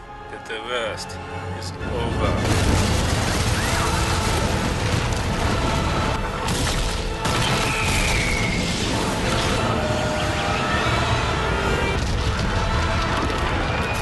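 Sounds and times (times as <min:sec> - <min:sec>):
dramatic film music: 0:00.0 - 0:14.0
heavy rumbling: 0:01.6 - 0:14.0
booms: 0:02.4 - 0:09.6
falling whine: 0:07.4 - 0:14.0.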